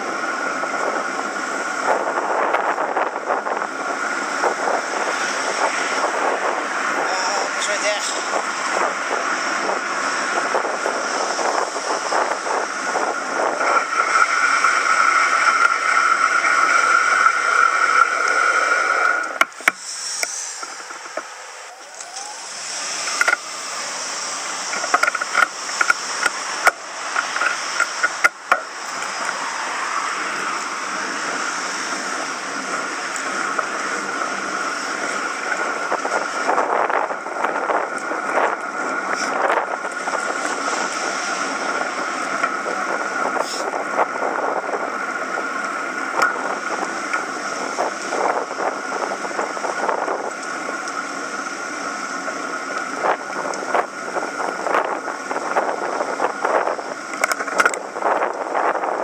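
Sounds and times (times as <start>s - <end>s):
bicycle road noise: 0.0s - 59.0s
steady high whine: 0.0s - 59.0s
wind rushing over microphone: 0.0s - 59.0s.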